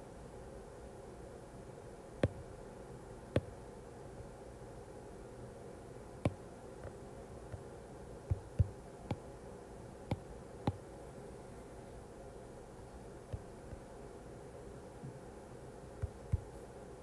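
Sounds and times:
faint steady hum: 0.0 - 17.0
stylus tapping on glass screen: 8.3 - 9.2, 10.1 - 10.8, 16.0 - 16.5.

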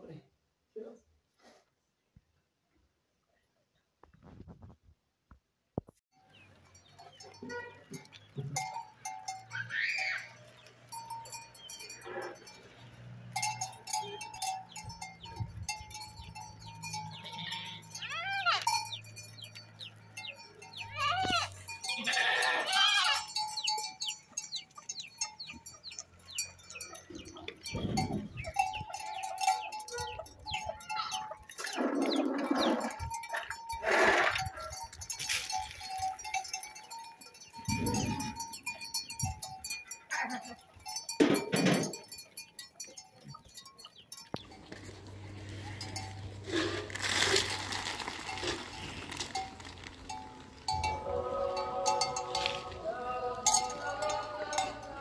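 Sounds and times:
animal bells ringing: 6.2 - 55.0
sheep and goats bleating: 7.2 - 15.3, 16.0 - 36.6, 37.6 - 41.1, 50.7 - 55.0.

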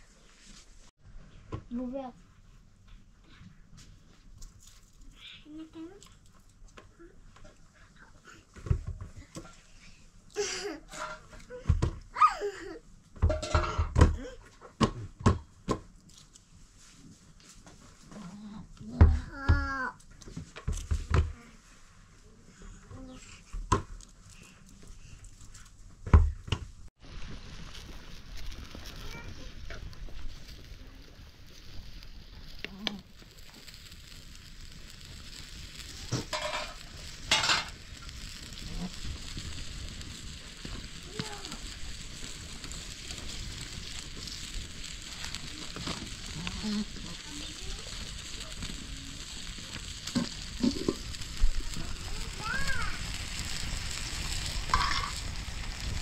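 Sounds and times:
tomatoes sizzling in a pan: 8.6 - 14.4, 26.9 - 56.0.

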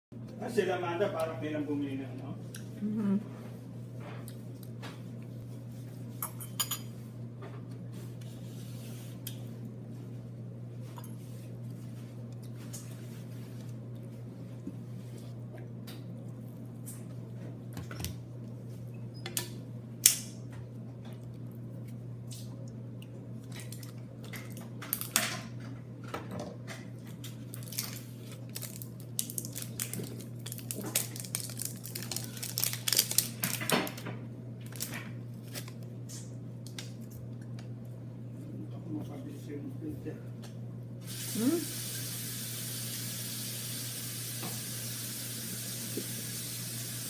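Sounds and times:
low steady hum: 0.2 - 47.0
plastic packaging clicking and crinkling: 27.3 - 35.8.

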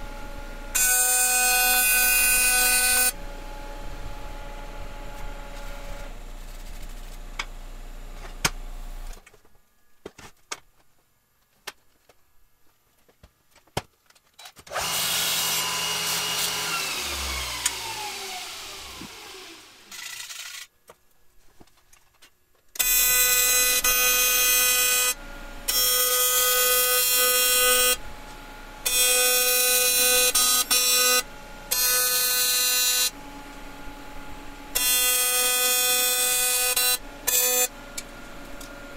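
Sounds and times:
whirring falling in pitch: 16.4 - 20.3
welding arc buzzing: 22.8 - 38.6.

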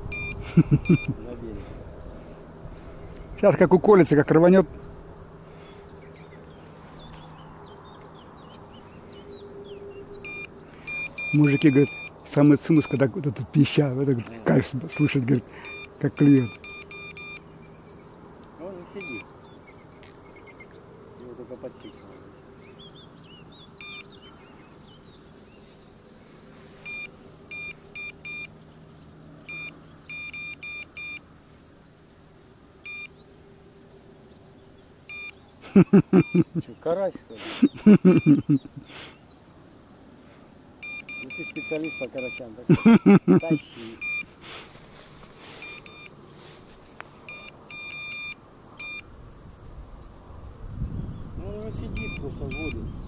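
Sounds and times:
bite alarm beeping: 0.0 - 1.2, 9.2 - 13.0, 14.9 - 17.6, 19.0 - 19.3, 23.7 - 24.2, 26.8 - 28.5, 29.4 - 31.2, 32.8 - 33.2, 35.1 - 35.4, 36.0 - 36.6, 37.9 - 38.6, 40.8 - 44.3, 45.6 - 46.2, 47.3 - 49.1, 52.0 - 52.8.

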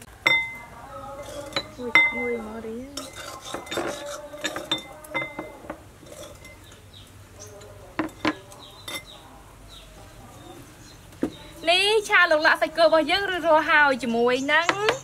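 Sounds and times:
spoons clinking against bowls: 0.2 - 6.8, 7.4 - 9.2.

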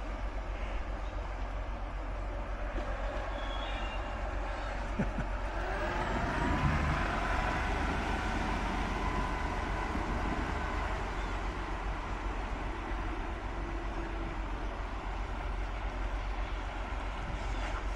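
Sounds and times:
boat motors humming: 4.0 - 17.9
faint whining tones: 5.5 - 17.9.

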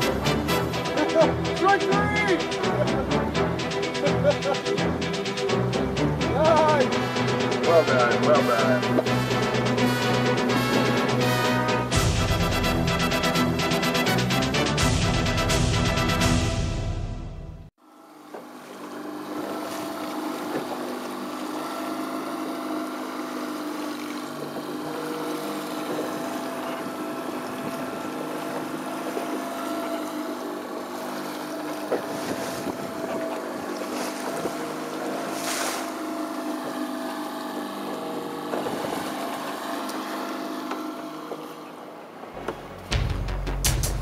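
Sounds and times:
outboard motor running: 0.0 - 16.9, 17.8 - 43.7
wind buffeting microphone: 32.0 - 34.7, 38.5 - 39.1.

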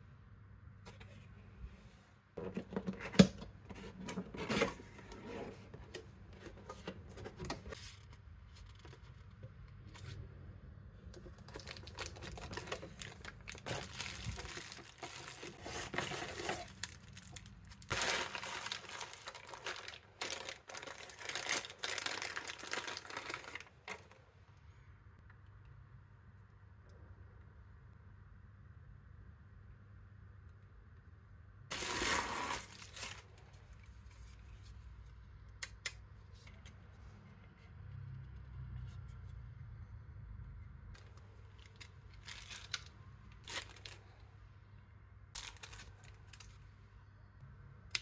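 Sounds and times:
plastic and bubble wrap crinkling: 11.3 - 24.2, 31.7 - 33.8, 41.0 - 44.2, 45.4 - 46.5
cardboard box being opened: 11.7 - 23.6, 31.7 - 33.2.

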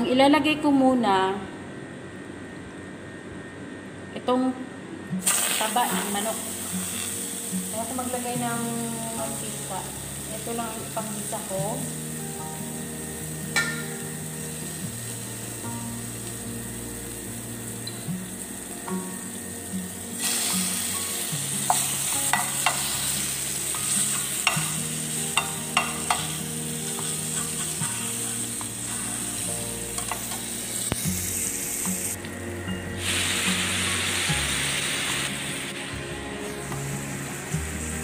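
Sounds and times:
fat sizzling in a frying pan: 5.2 - 32.2, 32.9 - 38.0
spoon scraping a pan: 25.4 - 29.4.

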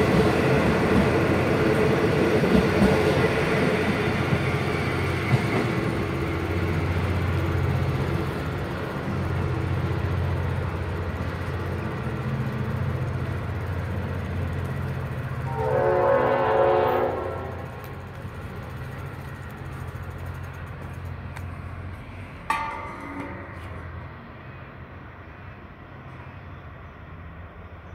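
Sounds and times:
diesel locomotive rumble: 0.0 - 27.9
train horn blast: 15.4 - 17.9.

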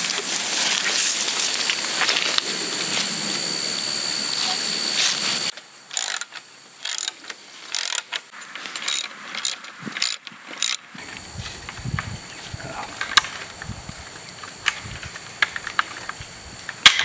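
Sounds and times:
thin high whine: 0.0 - 6.3
loud steady hiss: 0.0 - 17.0
ratchet wrench clicking: 5.9 - 8.2, 8.8 - 10.8.

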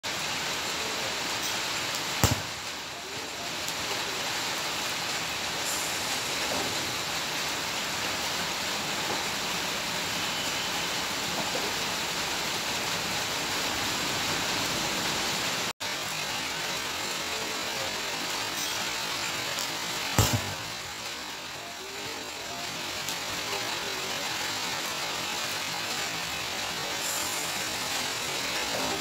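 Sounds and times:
rain falling on wet grass: 0.1 - 29.0
sharp click: 2.2 - 2.6, 20.2 - 20.6.

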